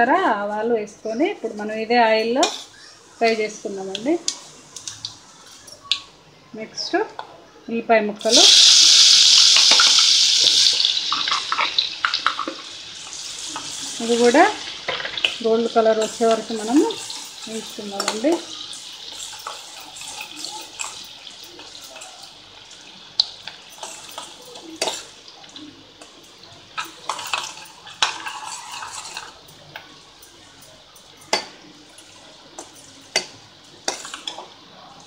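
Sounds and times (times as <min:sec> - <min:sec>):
onions sizzling in hot oil: 0:01.5 - 0:06.2, 0:08.2 - 0:35.0
spoon scraping a metal pan: 0:02.2 - 0:03.6, 0:13.2 - 0:22.0, 0:26.8 - 0:29.4.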